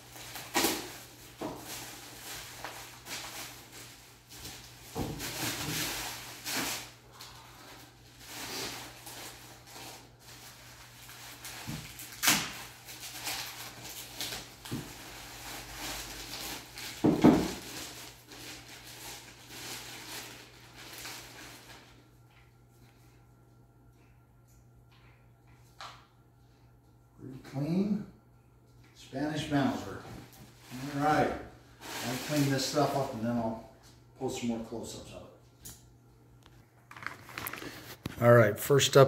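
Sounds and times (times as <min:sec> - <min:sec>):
paper and plastic crinkling: 0:00.0 - 0:22.0, 0:31.8 - 0:33.2, 0:36.8 - 0:38.2.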